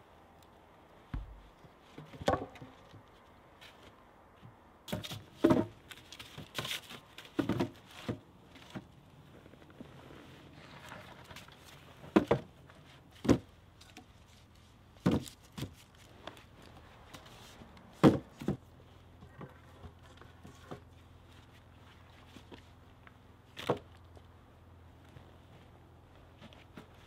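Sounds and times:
wooden poles knocking: 1.2 - 2.9.

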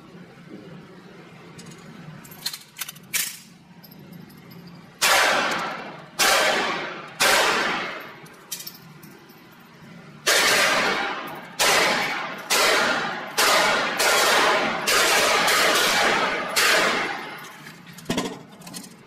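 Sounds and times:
pistol shots echoing: 5.0 - 8.1, 10.2 - 17.4.

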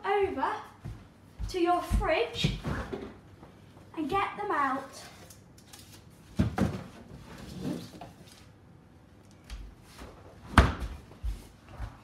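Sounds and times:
soft low thumps: 0.2 - 2.8.

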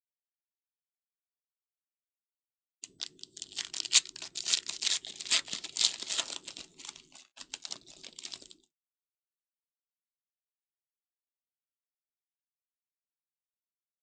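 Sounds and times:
foil wrapper tearing and crinkling: 2.8 - 8.6.

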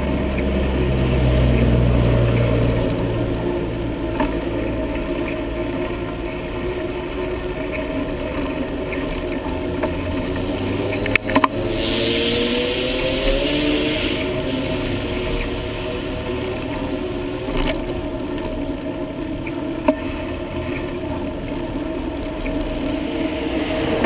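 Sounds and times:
road rumble: 0.0 - 24.0
wind: 0.0 - 24.0
hiss: 11.7 - 16.3.

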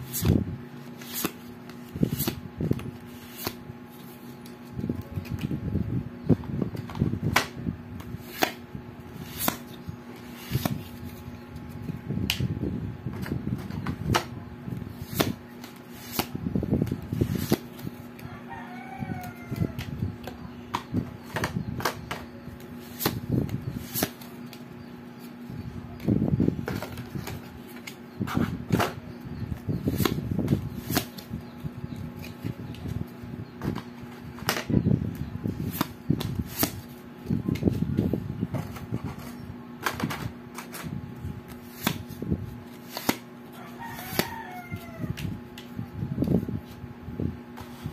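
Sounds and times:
faint hum: 0.0 - 47.9
cards rustling: 0.1 - 5.5, 9.2 - 11.4, 41.5 - 44.4
playing cards snapping: 1.0 - 2.4, 3.2 - 3.6, 15.1 - 16.4, 41.7 - 42.1, 42.8 - 43.2.

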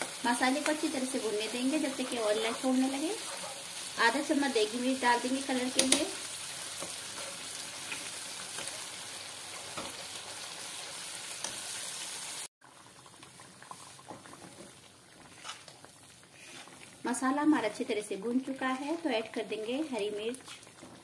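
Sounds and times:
paste sizzling in oil: 0.0 - 21.0
steel spoon stirring in pan: 5.3 - 11.9, 13.6 - 17.0.

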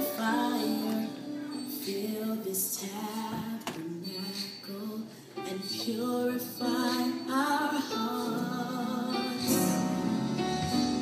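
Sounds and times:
gospel song with sung vocals: 0.0 - 11.0.

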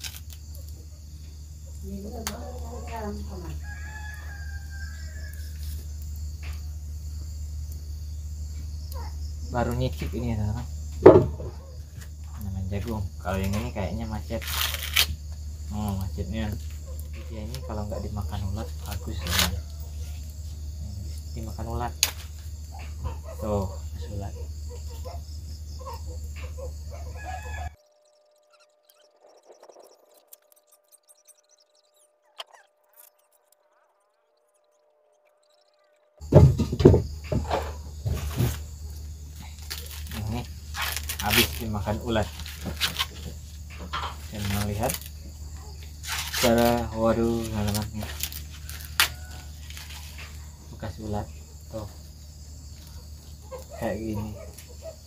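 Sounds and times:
insect drone: 0.0 - 55.0
rooster crowing: 2.7 - 5.8, 16.9 - 20.7, 24.2 - 28.2, 48.1 - 50.7
faint steady tone: 15.4 - 36.3.

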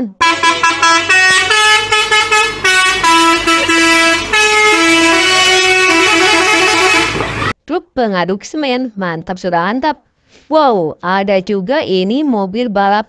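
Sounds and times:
faint engine hum: 0.2 - 7.5
musical air horn playing a tune: 0.2 - 7.5.

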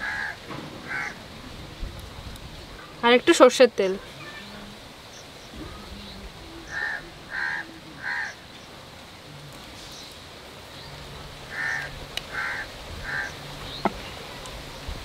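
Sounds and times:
crow cawing: 0.0 - 1.2, 6.7 - 8.4, 11.5 - 13.4.

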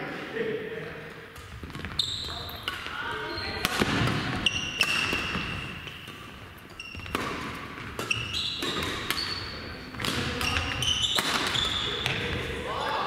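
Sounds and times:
shoes squeaking on court floor: 1.2 - 12.5
racket hitting shuttlecock: 3.6 - 12.4.

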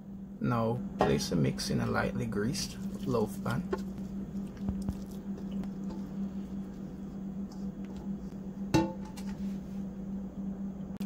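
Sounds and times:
low hum: 0.0 - 11.0
meat mixture squishing: 2.3 - 8.4.

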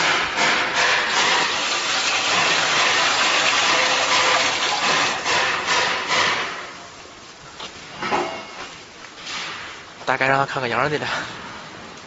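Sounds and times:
oil pouring: 1.1 - 5.3.

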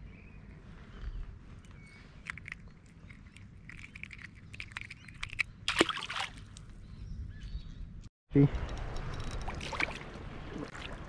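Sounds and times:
fish splashing at water surface: 3.2 - 6.6.

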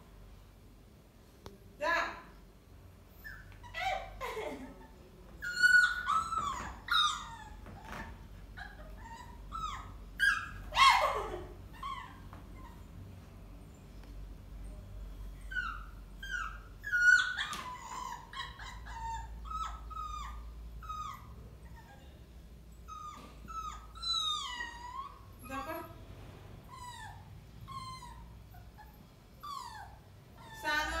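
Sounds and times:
puppy whimpering: 3.1 - 13.0, 15.4 - 22.2, 22.8 - 25.9, 26.6 - 31.0.

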